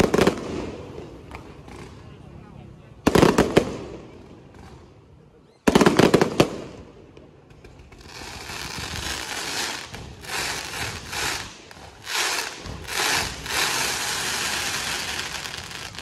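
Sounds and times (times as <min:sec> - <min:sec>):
fireworks rushing hiss: 0:07.9 - 0:16.0.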